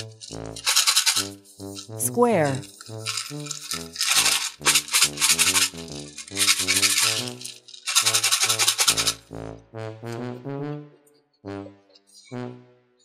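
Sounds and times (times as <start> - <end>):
bouncy instrumental music: 0.0 - 13.0.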